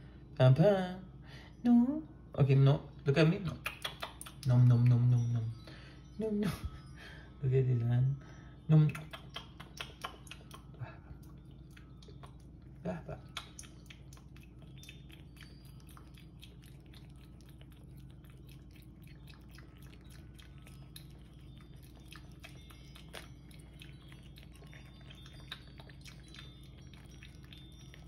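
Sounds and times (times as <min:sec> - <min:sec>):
kitten chewing food: 0:09.0 - 0:28.0.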